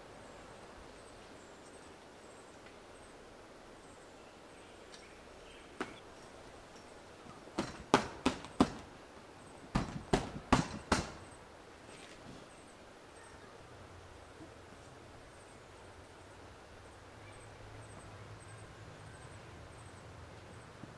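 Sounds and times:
hands slapping canvas tent wall: 0:07.6 - 0:08.9, 0:09.8 - 0:11.3.

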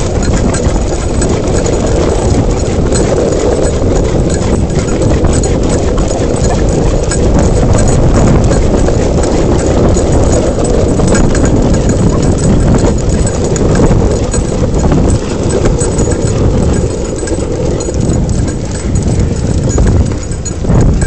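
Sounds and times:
skateboard wheels rolling on asphalt: 0:00.0 - 0:04.4, 0:06.2 - 0:12.2.

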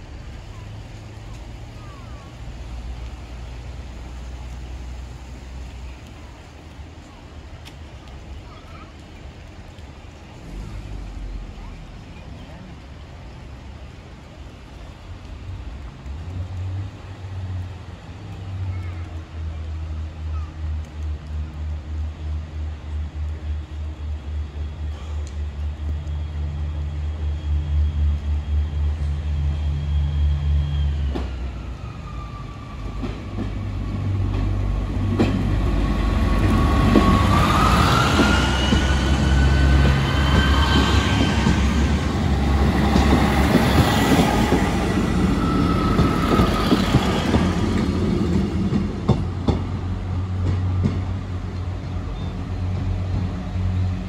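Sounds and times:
train engine rumble: 0:00.0 - 0:54.0
train wheels clunking: 0:30.5 - 0:54.0.

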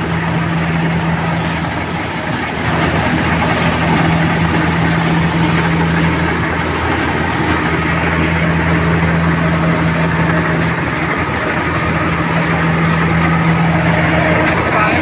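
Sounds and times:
motor running steadily: 0:00.0 - 0:15.0.

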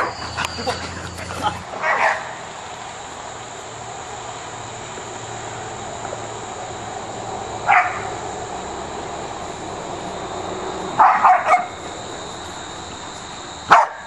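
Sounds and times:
dog barking: 0:00.0 - 0:02.4, 0:07.7 - 0:08.1, 0:11.0 - 0:11.8, 0:13.7 - 0:14.0
steady background hiss: 0:00.0 - 0:14.0.

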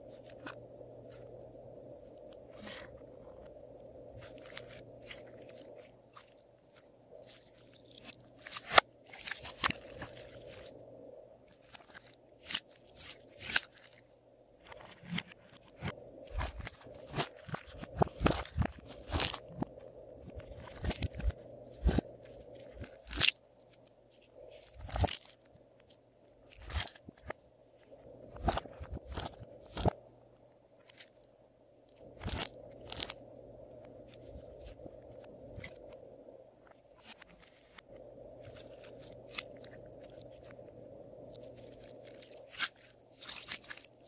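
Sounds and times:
slime popping and crackling: 0:16.4 - 0:19.4.

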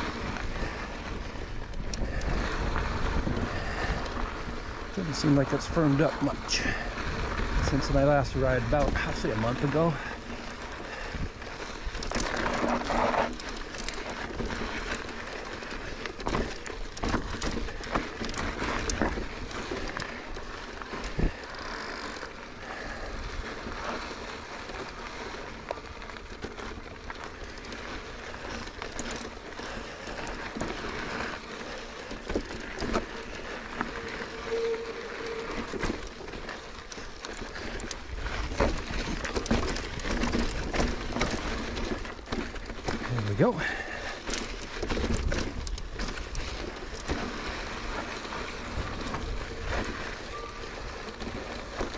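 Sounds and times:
bike rattling over rocks: 0:00.0 - 0:51.9
bike tyre rushing on dirt trail: 0:00.0 - 0:51.9
brake squeal: 0:05.0 - 0:10.0, 0:32.6 - 0:39.7, 0:46.2 - 0:51.9.

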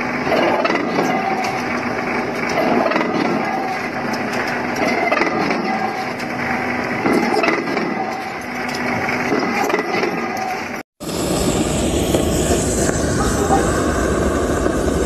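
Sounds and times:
boring bar grinding inside steel: 0:00.0 - 0:11.2.

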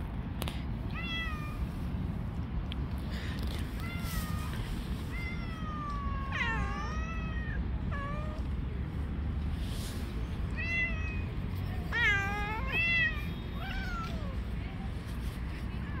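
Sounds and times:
cats meowing: 0:00.9 - 0:01.6, 0:03.7 - 0:08.6, 0:10.5 - 0:14.5.

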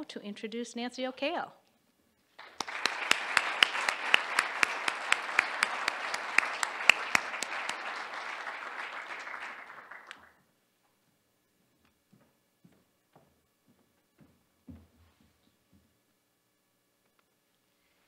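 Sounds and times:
sharp single claps: 0:02.4 - 0:10.3
audience applauding: 0:02.4 - 0:10.4.

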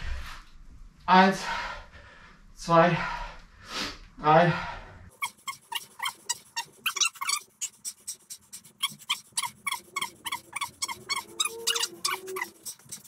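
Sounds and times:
rapid panting: 0:05.1 - 0:13.0.

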